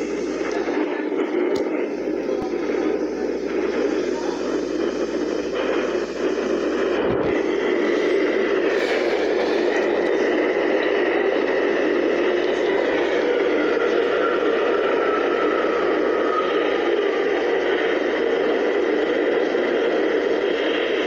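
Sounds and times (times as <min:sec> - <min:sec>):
subway train rumbling on rails: 0:00.0 - 0:21.0.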